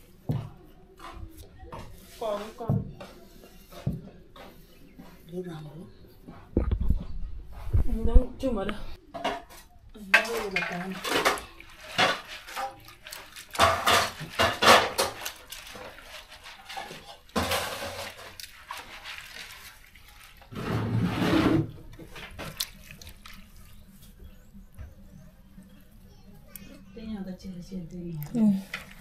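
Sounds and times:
dry peas rattling in metal basin: 10.0 - 24.2.

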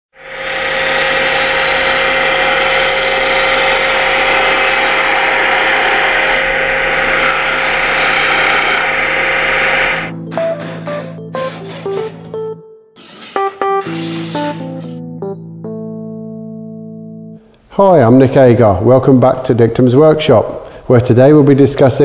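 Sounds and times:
lathe motor hum: 0.2 - 10.1.

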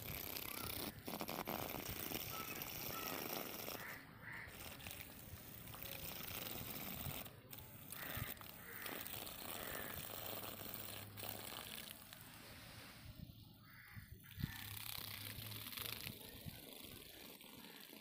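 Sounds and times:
small electric motor spinning: 0.0 - 12.2, 14.2 - 18.0
hiss of flung dirt: 11.6 - 13.2.

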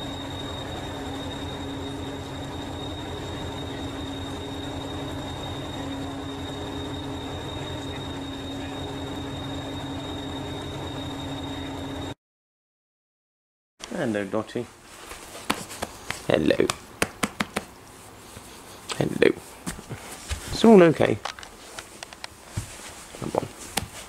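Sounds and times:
diesel train engine idling: 0.0 - 12.1.

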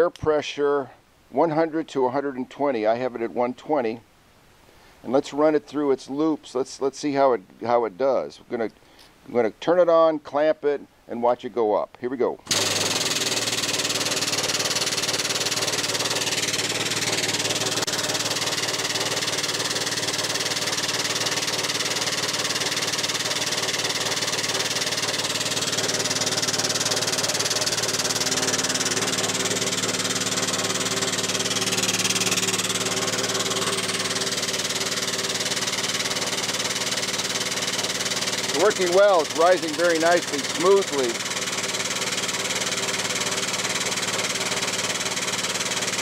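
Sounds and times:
hydraulic pump pumping: 12.4 - 46.0.

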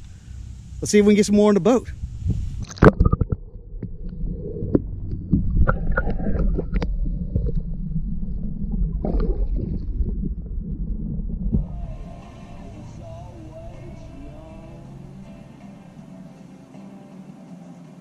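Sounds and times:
steady low rumble: 0.0 - 16.4
knocks and clicks: 2.6 - 7.8.

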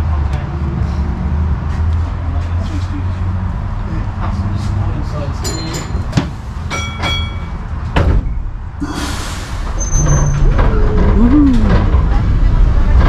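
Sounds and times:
tram running rumble: 0.0 - 13.0
air brakes hissing: 8.8 - 10.4
high squeal: 8.8 - 11.4.

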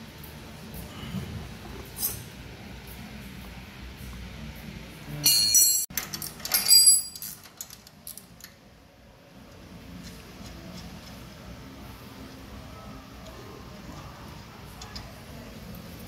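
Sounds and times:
metal tools clinking: 5.2 - 8.6.

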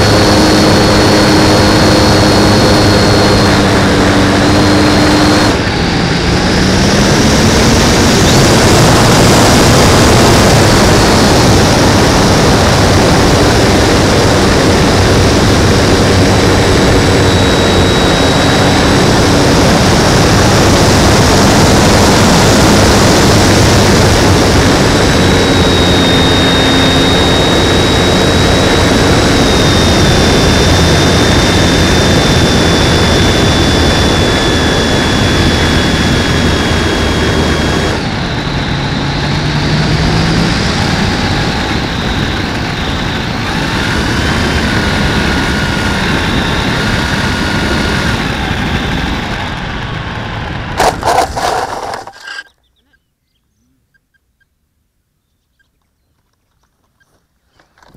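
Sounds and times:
electric motor whine: 0.0 - 52.5.

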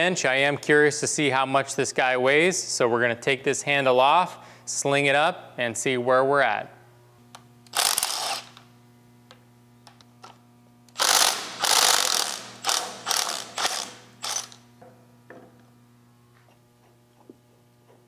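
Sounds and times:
cordless driver spinning: 7.6 - 8.6, 10.9 - 14.6.

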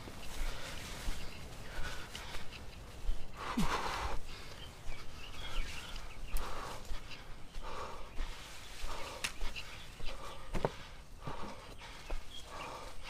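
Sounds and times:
footsteps on twigs and leaves: 0.0 - 13.0
heavy tired breathing: 0.0 - 13.0.

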